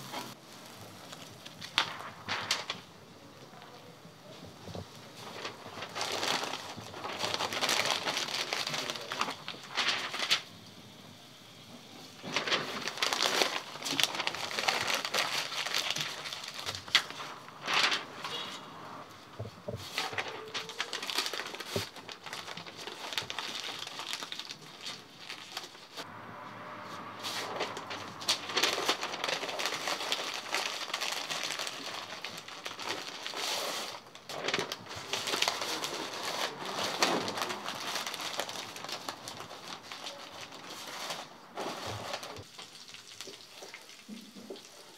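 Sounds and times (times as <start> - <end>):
wrapping paper rustling: 0.0 - 10.8, 11.6 - 26.1, 27.2 - 44.9.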